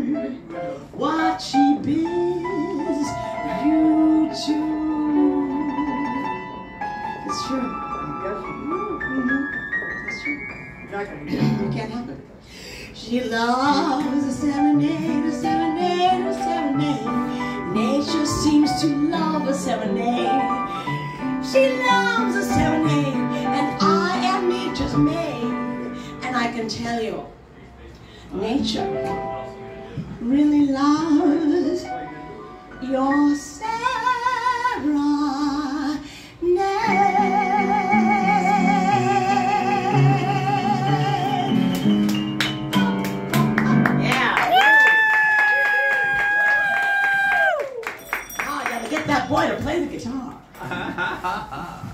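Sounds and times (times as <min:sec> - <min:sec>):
woman singing into a microphone: 0:00.0 - 0:09.9, 0:13.0 - 0:27.2, 0:30.0 - 0:32.0, 0:32.8 - 0:41.9
piano accompaniment: 0:00.0 - 0:27.5, 0:28.3 - 0:46.6
woman singing long note with vibrato: 0:01.0 - 0:09.8, 0:32.9 - 0:41.6.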